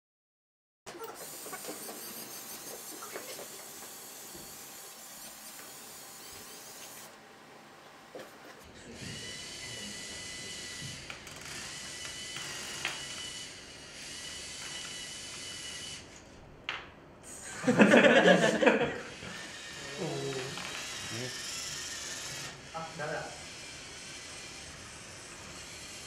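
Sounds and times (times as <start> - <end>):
robot motors and gears whirring: 0.9 - 7.1, 8.9 - 16.2, 19.1 - 26.0.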